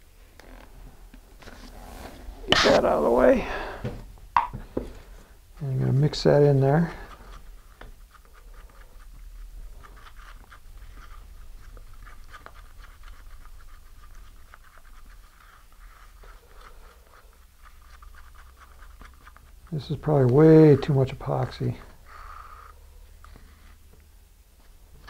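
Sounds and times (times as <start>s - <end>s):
stir stick scraping inside cup: 5.6s - 23.8s.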